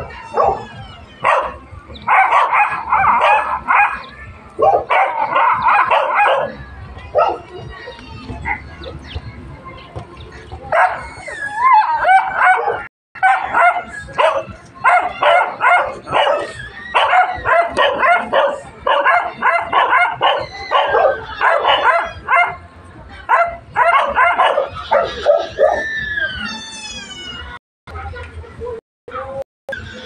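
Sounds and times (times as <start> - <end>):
dogs barking and yelping: 0.0 - 9.0, 10.7 - 22.6, 23.2 - 26.6
dog whining yips: 14.2 - 22.6, 23.3 - 26.6.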